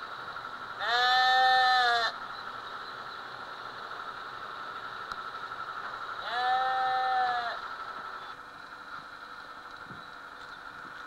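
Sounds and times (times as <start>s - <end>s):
sheep bleating: 0.8s - 2.2s, 6.2s - 7.6s.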